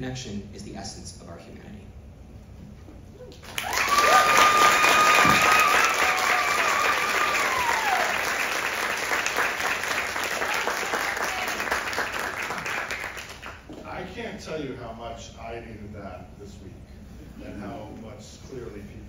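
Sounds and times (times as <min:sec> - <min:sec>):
audience clapping: 0:03.3 - 0:13.8
person cheering: 0:03.5 - 0:08.4, 0:10.4 - 0:11.7.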